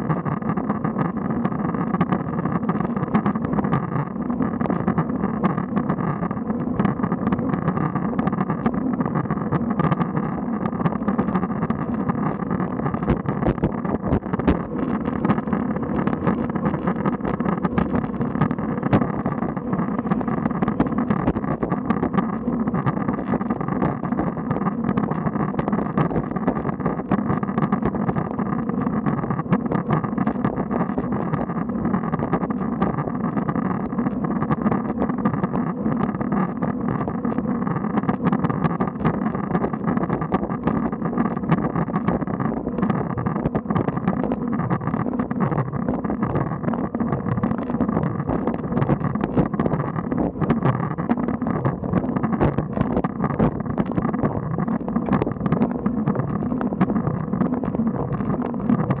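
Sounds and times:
small clicks and knocks: 0:00.0 - 0:59.0.

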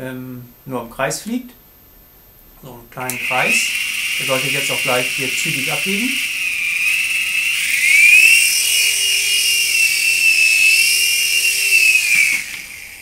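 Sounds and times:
toy helicopter motor whining: 0:03.1 - 0:13.0.

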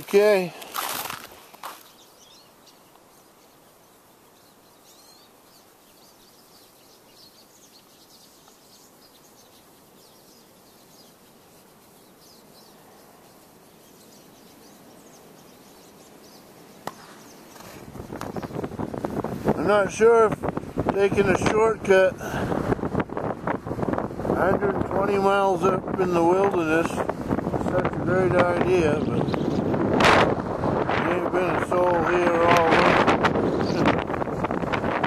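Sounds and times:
high bird chirps: 0:01.8 - 0:18.7, 0:29.0 - 0:29.7.

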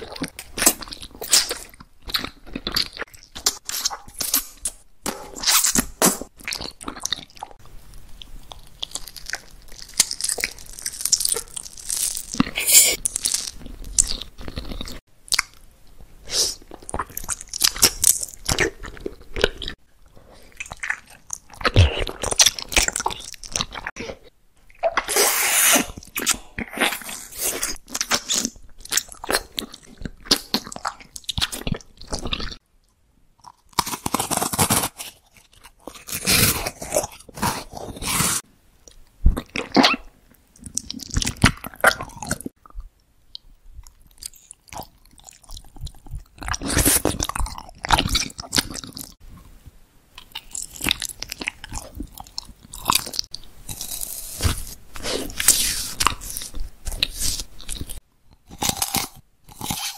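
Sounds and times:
crunchy chewing: 0:08.2 - 0:15.6, 0:40.6 - 0:49.2, 0:50.2 - 0:59.9.

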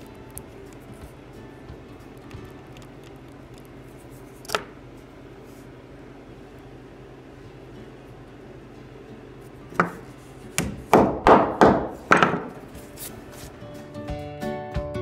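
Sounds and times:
hammer tapping wood: 0:09.8 - 0:10.0, 0:10.6 - 0:12.6.

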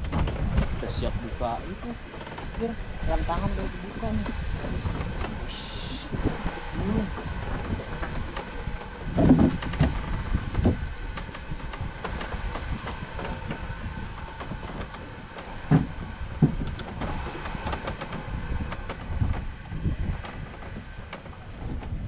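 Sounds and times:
rumbling wind and waves: 0:00.0 - 0:22.0
dull knocks: 0:15.7 - 0:18.1.

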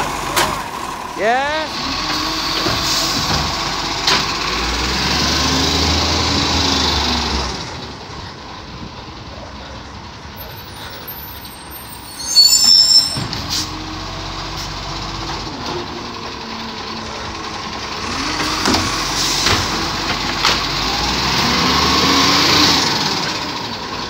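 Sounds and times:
garbage truck diesel engine: 0:00.0 - 0:24.0
brakes squealing with hiss: 0:10.5 - 0:13.8.

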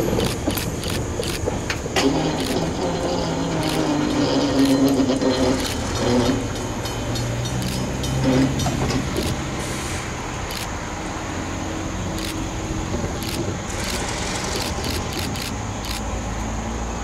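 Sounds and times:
locomotive diesel engine running: 0:00.0 - 0:17.0.

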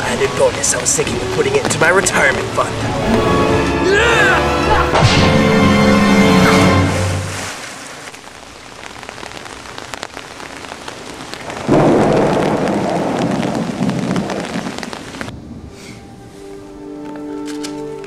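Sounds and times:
steady rain: 0:00.0 - 0:18.0
thunder roll: 0:11.4 - 0:16.2.

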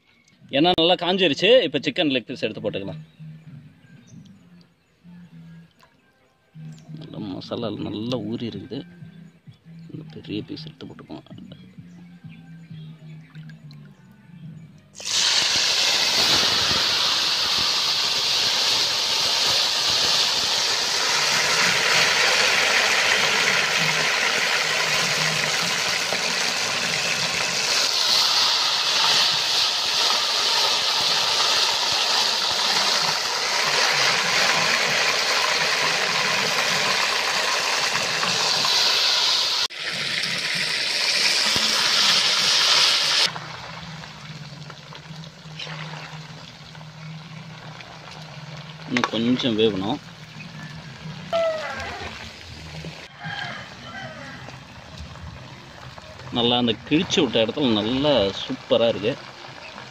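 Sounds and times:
chicken deep-frying in oil: 0:15.0 - 0:59.9.

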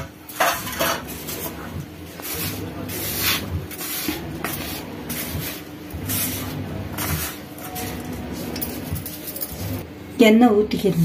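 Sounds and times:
hand mixing dry flour in bowl: 0:01.1 - 0:09.8.

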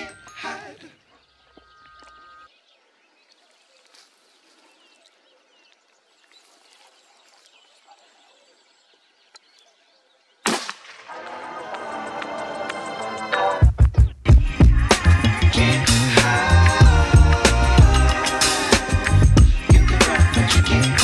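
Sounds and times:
faint bird chirps: 0:00.0 - 0:10.4
rifle shot: 0:10.4 - 0:11.1
music: 0:11.1 - 0:21.0.

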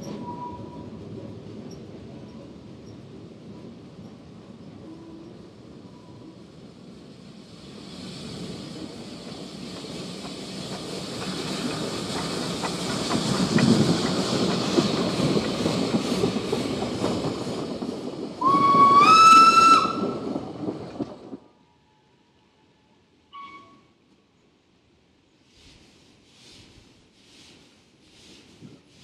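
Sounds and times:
steam train passing: 0:00.0 - 0:23.5, 0:24.7 - 0:29.0
steam hissing: 0:06.4 - 0:20.8
wheels clicking over rail joints: 0:08.8 - 0:21.4
steam whistle: 0:18.4 - 0:20.2.

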